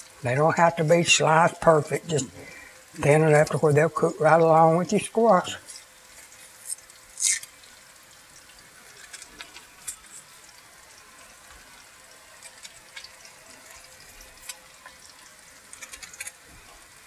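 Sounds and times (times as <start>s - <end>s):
squash sizzling in oil: 0.0s - 17.0s
small ticks and crackles: 5.0s - 17.0s.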